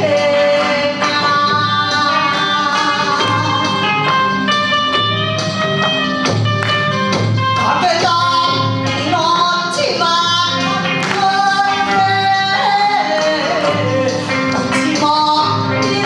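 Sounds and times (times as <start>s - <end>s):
woman singing into microphone: 0.0s - 4.4s, 7.6s - 16.0s
electric guitar: 0.0s - 16.0s.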